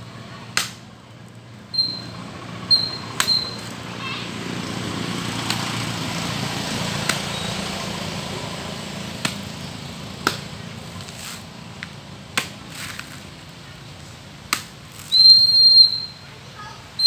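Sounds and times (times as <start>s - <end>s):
high whistle-like tone: 1.7s - 3.6s, 15.1s - 16.3s
knife chopping coconuts: 9.2s - 9.5s, 10.2s - 10.5s, 12.3s - 12.9s.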